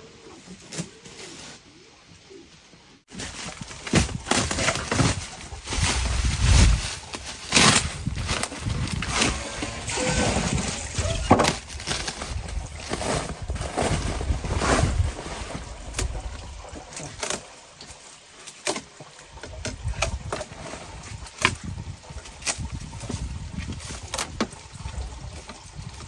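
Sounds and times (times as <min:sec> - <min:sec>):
plastic film crinkling: 0:03.1 - 0:15.1.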